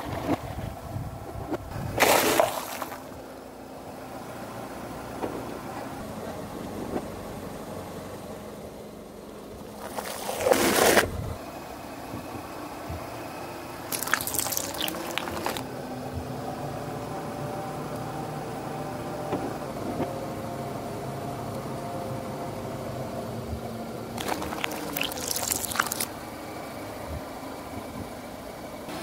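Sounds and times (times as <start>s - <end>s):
plastic bottle crushed by tyre: 13.9s - 15.6s, 24.2s - 26.1s.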